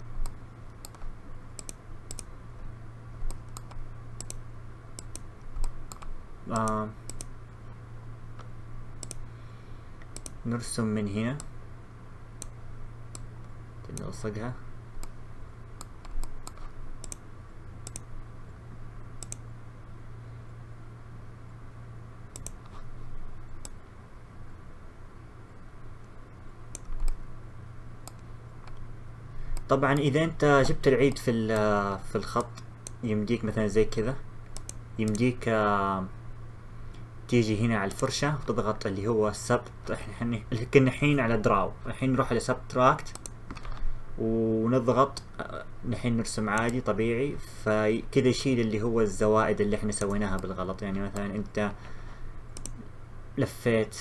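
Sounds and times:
steady low hum: 0:00.0 - 0:54.0
computer mouse clicks: 0:00.2 - 0:02.3, 0:03.2 - 0:04.4, 0:05.0 - 0:07.3, 0:08.4 - 0:09.3, 0:10.0 - 0:10.4, 0:12.4 - 0:14.1, 0:15.8 - 0:17.2, 0:17.8 - 0:18.1, 0:19.2 - 0:19.5, 0:22.3 - 0:22.9, 0:23.6 - 0:23.8, 0:26.0 - 0:27.2, 0:28.0 - 0:28.8, 0:32.3 - 0:33.0, 0:34.4 - 0:35.3, 0:37.9 - 0:38.1, 0:43.0 - 0:43.9, 0:46.5 - 0:46.9, 0:50.0 - 0:51.6, 0:52.6 - 0:52.9.

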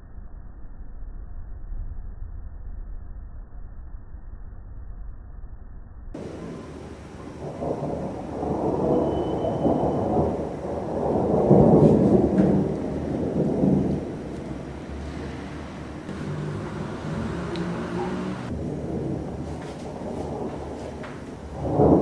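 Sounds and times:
rolling thunder: 0:06.2 - 0:22.0.

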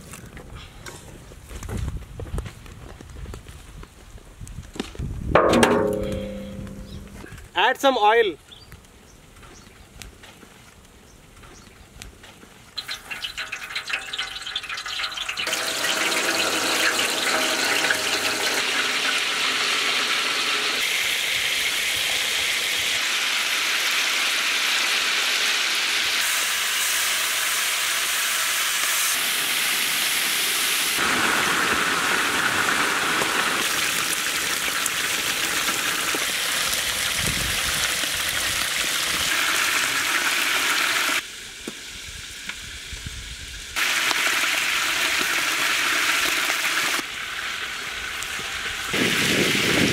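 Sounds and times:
chicken frying in hot oil: 0:12.6 - 0:49.9.

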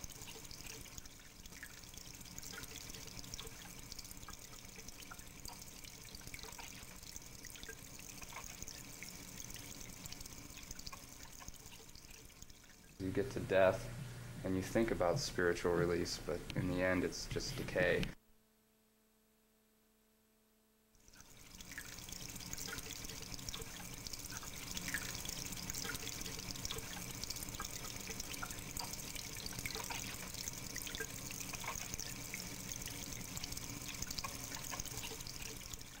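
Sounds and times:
water trickling and dripping: 0:00.0 - 0:13.7, 0:21.0 - 0:36.0.

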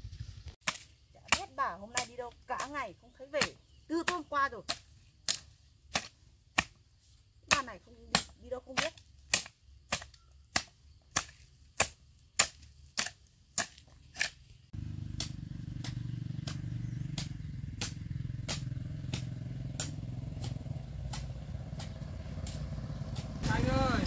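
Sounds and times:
hoe chopping into soil: 0:00.6 - 0:24.0
motorbike engine humming: 0:14.8 - 0:24.0.

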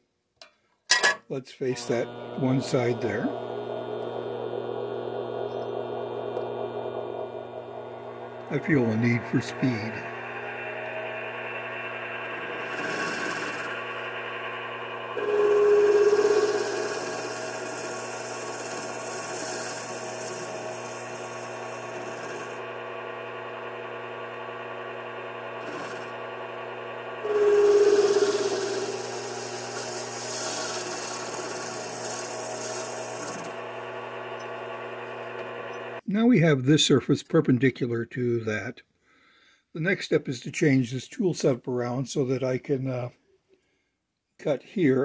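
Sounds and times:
lathe motor and gear hum: 0:01.8 - 0:36.0
cutting tool hiss: 0:12.3 - 0:13.9, 0:15.2 - 0:22.6, 0:27.2 - 0:33.6.

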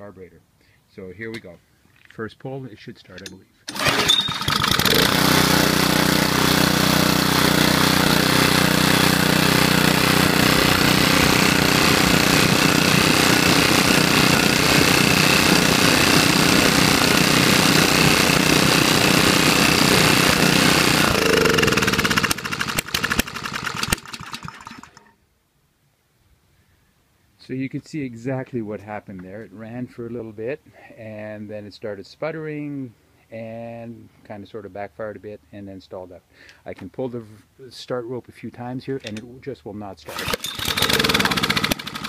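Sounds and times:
engine sputtering and backfiring: 0:03.7 - 0:25.0, 0:40.2 - 0:42.0
small engine running: 0:03.7 - 0:25.1, 0:40.1 - 0:42.0.

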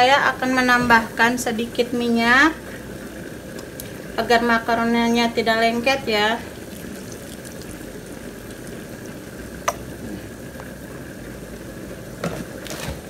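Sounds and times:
water boiling in a pan: 0:00.0 - 0:13.0.

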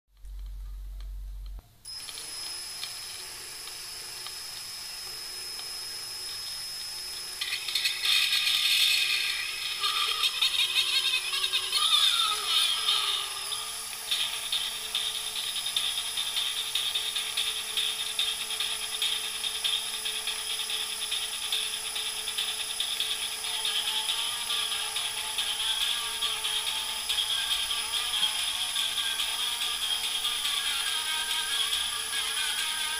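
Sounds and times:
scratchy distorted record playback: 0:00.1 - 0:01.8
drill motor whirring: 0:01.9 - 0:32.9.

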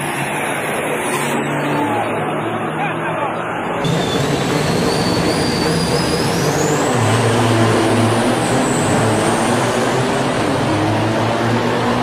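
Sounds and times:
diesel truck engine accelerating: 0:00.0 - 0:12.0
high engine whine: 0:00.0 - 0:12.0.

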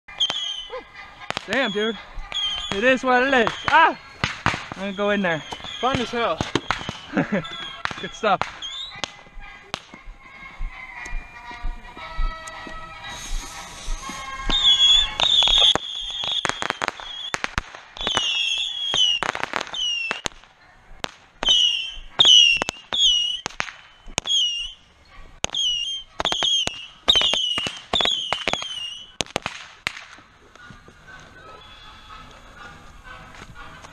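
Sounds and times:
bottle rockets whistling: 0:00.1 - 0:09.2, 0:13.0 - 0:20.3, 0:21.4 - 0:29.3
firecrackers banging: 0:00.1 - 0:33.9.

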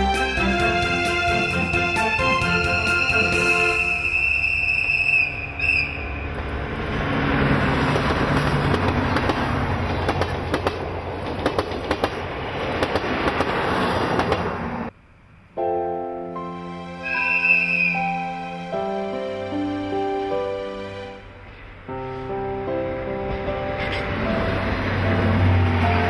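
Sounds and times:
train wheels rumbling: 0:00.0 - 0:14.9
diesel locomotive engine drone: 0:00.0 - 0:26.0
wheels clicking over rail joints: 0:07.6 - 0:14.7.

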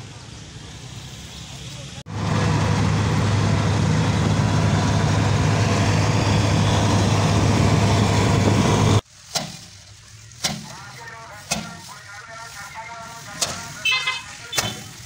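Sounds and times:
combine harvester engine running: 0:02.1 - 0:09.0.

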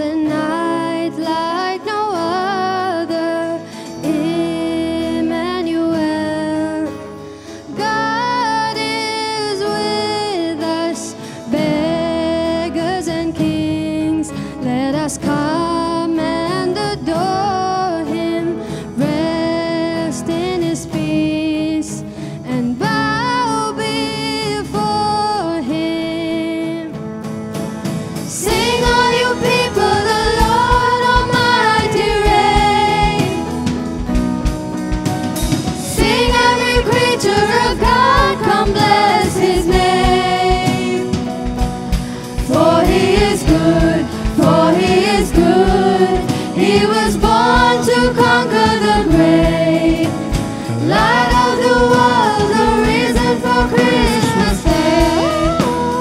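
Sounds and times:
instrumental accompaniment: 0:00.0 - 0:56.0
steady drum beat: 0:28.0 - 0:56.0
vocal group singing: 0:28.2 - 0:34.1, 0:35.8 - 0:56.0.

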